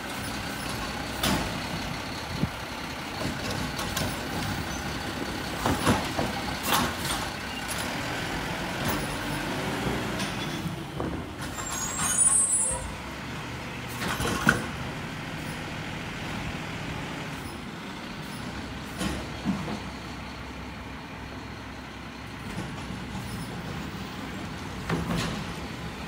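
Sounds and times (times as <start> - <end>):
garbage truck diesel engine running: 0.0 - 26.0
high squeal: 11.5 - 13.0.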